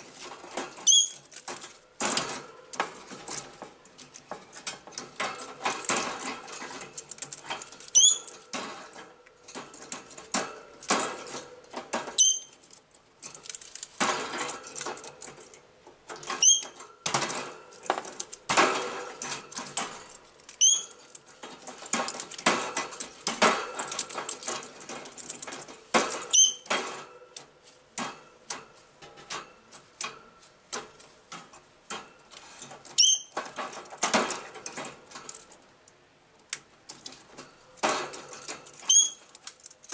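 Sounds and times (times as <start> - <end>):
parrot chirping: 7.9 - 8.3, 20.6 - 20.9.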